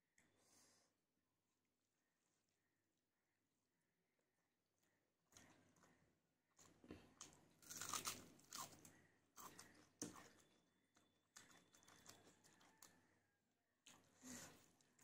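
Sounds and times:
onion crunching while chewed: 0:05.4 - 0:13.0.

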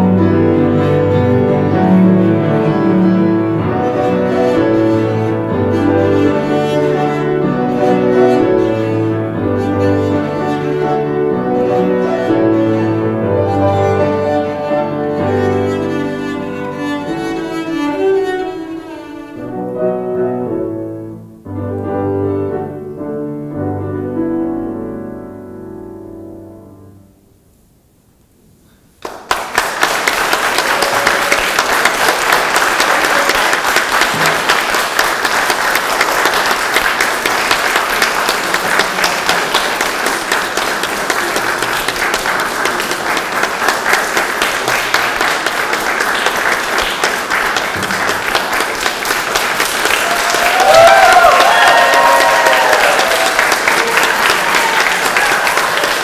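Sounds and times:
piano and cello note: 0:00.0 - 0:27.1
audience applause: 0:29.0 - 0:56.0
people cheering: 0:29.1 - 0:56.0.

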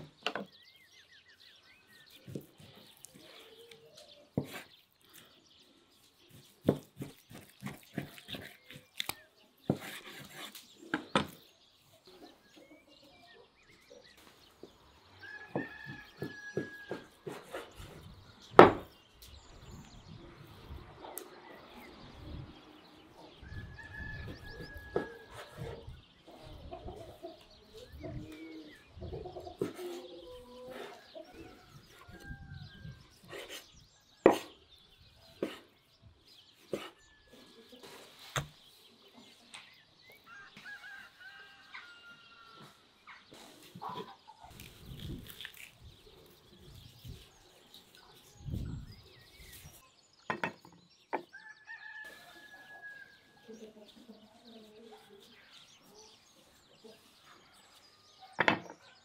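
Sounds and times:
chickens clucking: 0:23.0 - 0:32.2, 0:42.6 - 0:45.2.

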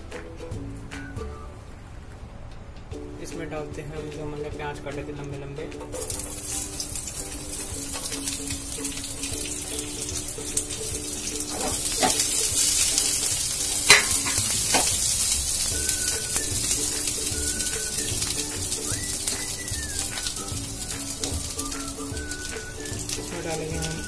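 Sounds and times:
pieces knocking into pan: 0:05.8 - 0:24.0
onions sizzling in oil: 0:05.9 - 0:24.0.

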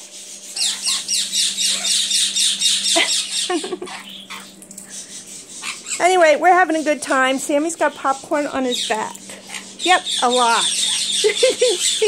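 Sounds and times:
conures shrill squawks: 0:00.4 - 0:06.2, 0:08.7 - 0:12.0.

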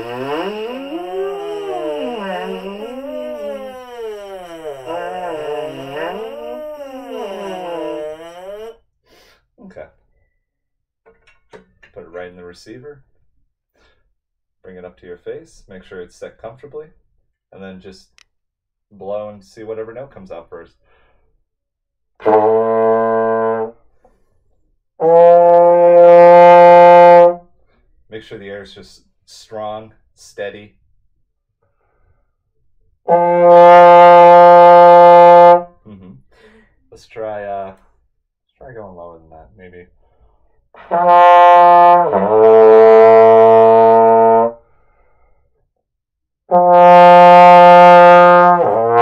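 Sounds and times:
trombone held notes: 0:00.0 - 0:08.7, 0:22.2 - 0:23.7, 0:25.0 - 0:27.4, 0:33.1 - 0:35.7, 0:40.8 - 0:44.6, 0:46.5 - 0:49.0.

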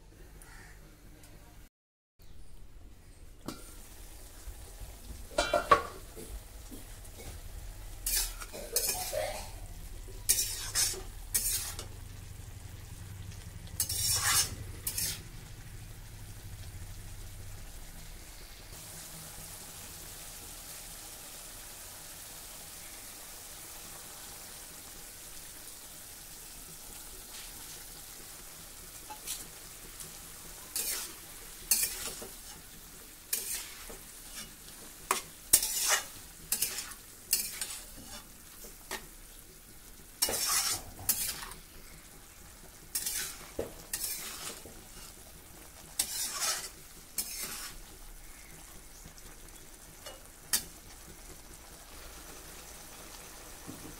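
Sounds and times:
vegetables sizzling in a wok: 0:02.2 - 0:53.9
spatula scraping a wok: 0:05.3 - 0:16.6, 0:27.2 - 0:39.2, 0:40.1 - 0:49.3.

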